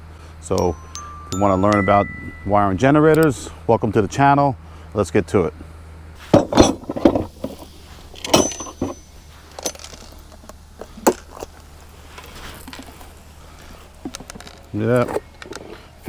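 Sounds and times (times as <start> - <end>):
metal tools clinking and knocking: 0.6 - 2.4, 8.3 - 10.1.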